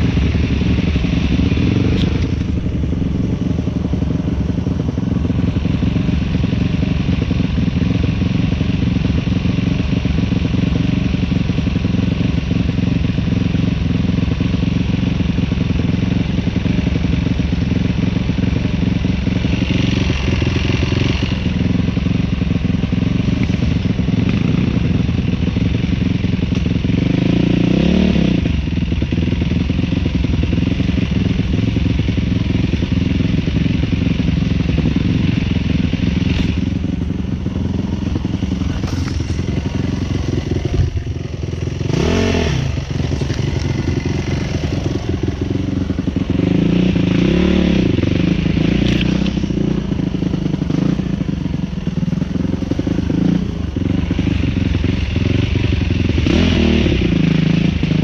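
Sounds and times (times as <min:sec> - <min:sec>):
dirt bike engine revving: 0:34.8 - 0:58.0.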